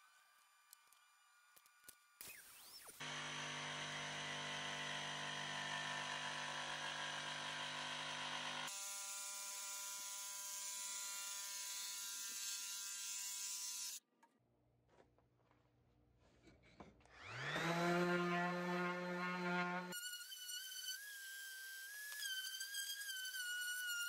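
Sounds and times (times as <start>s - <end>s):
jigsaw cutting wood: 2.6s - 12.4s, 17.2s - 24.0s.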